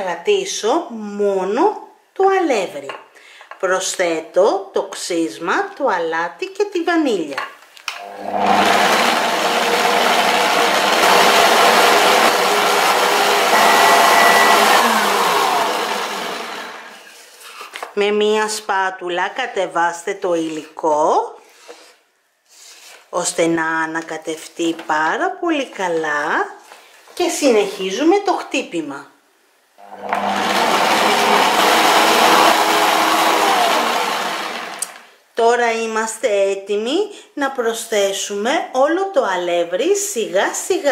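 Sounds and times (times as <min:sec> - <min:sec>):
stand mixer whisking batter: 0:08.1 - 0:16.8, 0:29.8 - 0:35.0.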